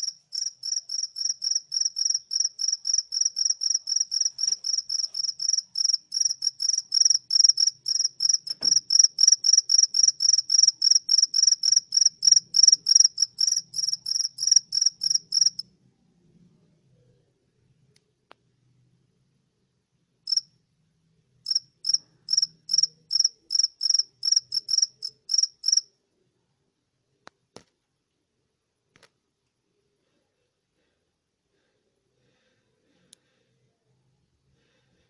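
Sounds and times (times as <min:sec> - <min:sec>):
cricket chirping: 0:00.0 - 0:15.6, 0:20.3 - 0:20.5, 0:21.4 - 0:25.9.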